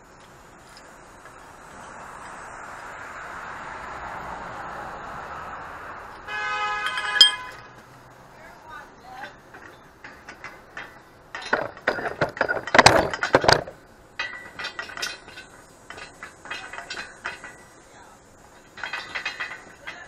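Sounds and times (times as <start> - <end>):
pipe bender metallic clicking: 6.3 - 7.7, 9.2 - 20.0.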